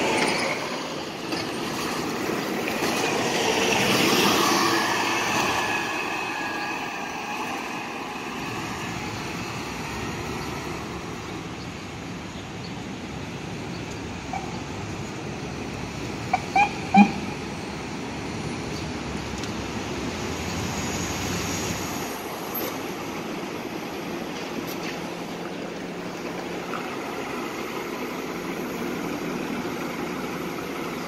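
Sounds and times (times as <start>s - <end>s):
buses driving off: 0.0s - 31.0s
traffic noise: 0.0s - 31.0s.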